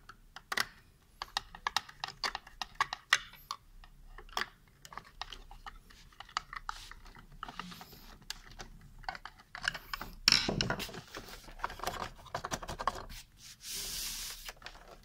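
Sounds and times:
plastic clatter: 0:04.2 - 0:13.1.

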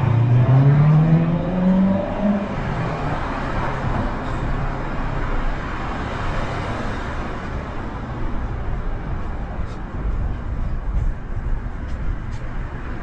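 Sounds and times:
vehicle engine accelerating: 0:00.0 - 0:03.8
steady traffic noise: 0:00.0 - 0:13.0.

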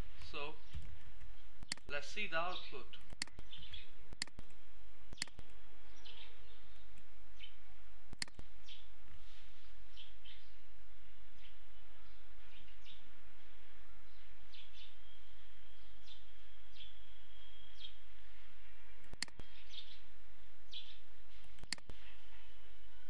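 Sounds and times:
low electrical hum: 0:00.0 - 0:23.0
short clicks: 0:00.2 - 0:01.9, 0:02.9 - 0:05.6, 0:08.1 - 0:08.5, 0:19.0 - 0:19.5, 0:21.6 - 0:22.0
faint bird chirps: 0:08.6 - 0:23.0.

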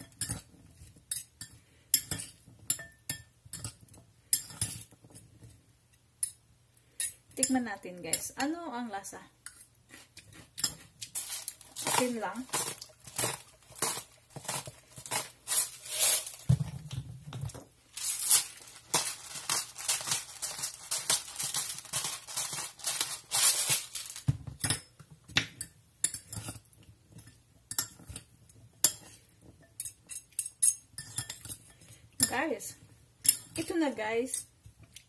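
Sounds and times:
spice grinders grinding: 0:09.5 - 0:16.5, 0:17.9 - 0:24.3.

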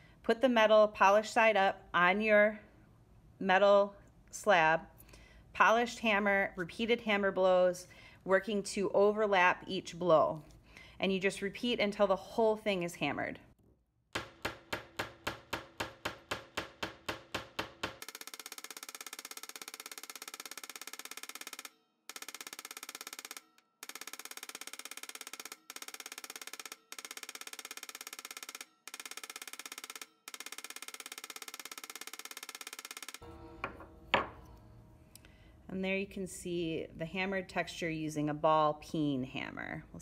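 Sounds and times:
hammer striking metal: 0:14.2 - 0:18.0, 0:33.2 - 0:34.6.

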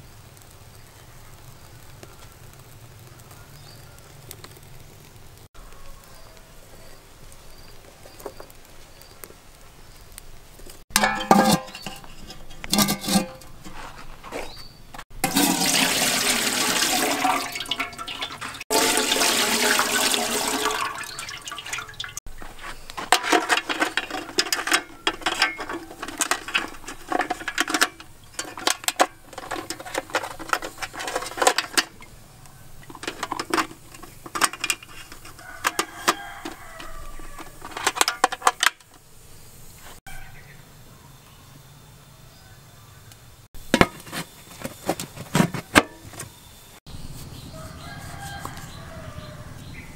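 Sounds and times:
crab shell clacking in metal pot: 0:10.9 - 0:13.7, 0:15.2 - 0:39.1, 0:43.6 - 0:46.2
water rushing: 0:15.2 - 0:22.2.

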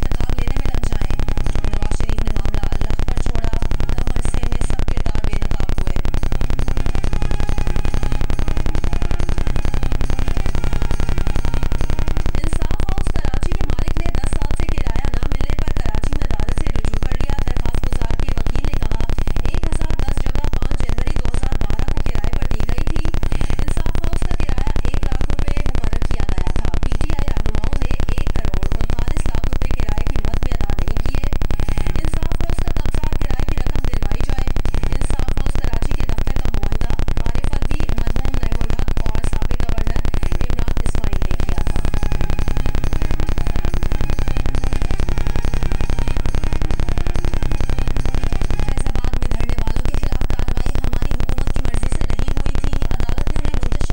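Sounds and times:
loud electrical buzz: 0:00.0 - 0:53.9
static hiss: 0:00.0 - 0:53.9.

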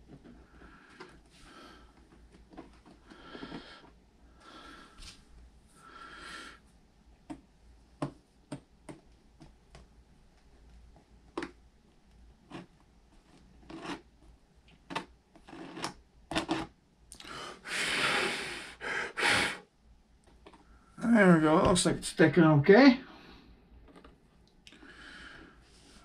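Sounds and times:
person blowing: 0:17.3 - 0:19.6.

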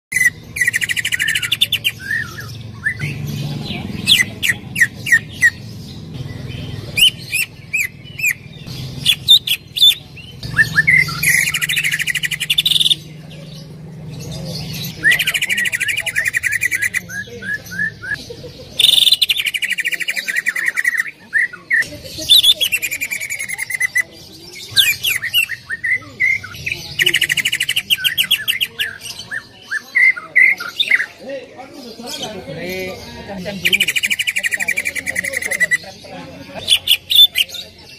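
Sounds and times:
bird chirps and whistles: 0:00.1 - 0:03.2, 0:06.9 - 0:08.4, 0:09.0 - 0:13.0, 0:18.8 - 0:21.6
bird singing trilled phrases: 0:00.1 - 0:37.9.

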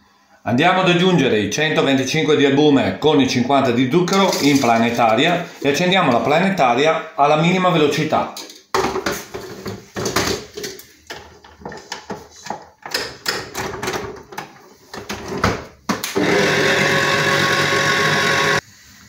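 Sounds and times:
mixer motor whisking: 0:16.2 - 0:18.6.

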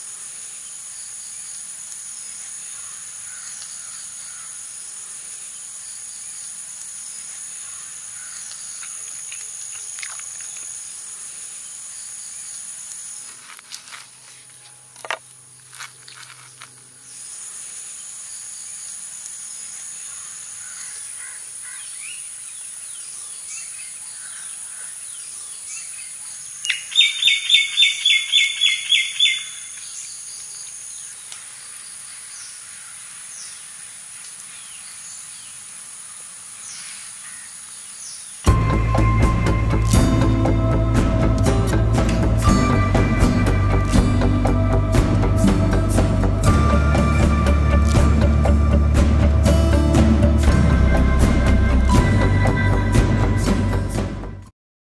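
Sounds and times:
faint bird chirps: 0:22.9 - 0:31.3.

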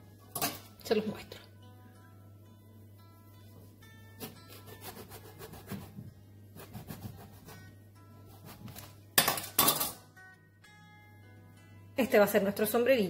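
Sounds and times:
knife scrape: 0:04.2 - 0:05.9, 0:06.6 - 0:07.7.

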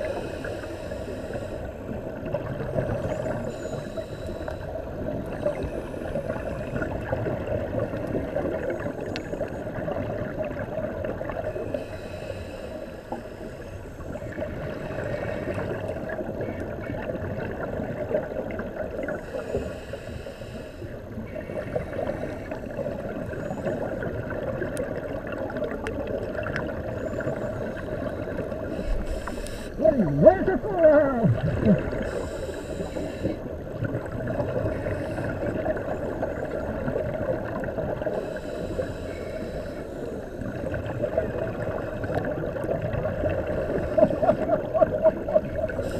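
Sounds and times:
muffled underwater noise: 0:00.0 - 0:45.9
scuba regulator exhaling bubbles: 0:31.1 - 0:39.3, 0:40.4 - 0:45.9.

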